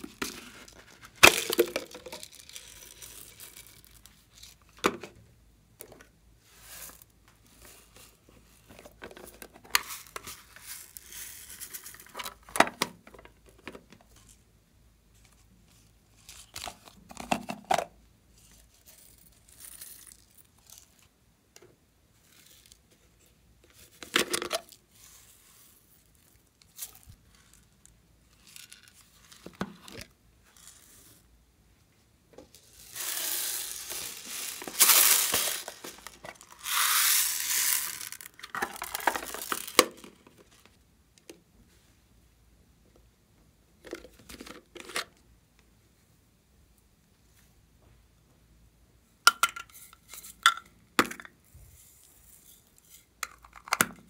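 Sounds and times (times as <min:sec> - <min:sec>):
plastic rustling and handling: 0:00.0 - 0:05.1, 0:32.3 - 0:40.8
sprinkles poured onto slime: 0:32.7 - 0:39.8.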